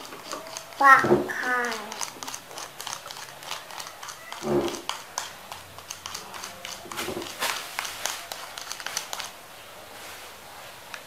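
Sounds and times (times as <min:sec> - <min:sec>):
plastic toy clicks and taps: 0:00.2 - 0:09.3
child's voice: 0:00.7 - 0:02.0.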